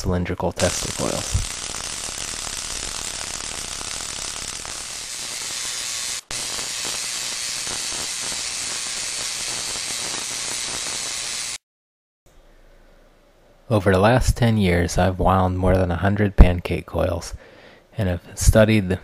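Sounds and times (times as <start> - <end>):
tesla coil spark crackling: 0.0 - 11.6.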